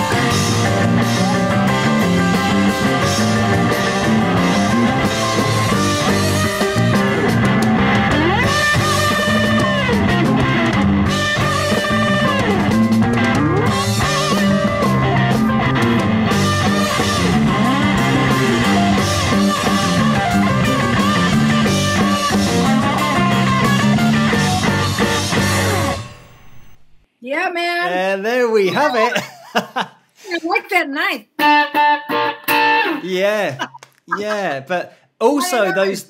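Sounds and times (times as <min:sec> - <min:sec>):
rock band playing live: 0:00.0 - 0:26.5, 0:31.4 - 0:33.2
electric guitar lead with bends: 0:00.0 - 0:27.0, 0:31.4 - 0:34.4.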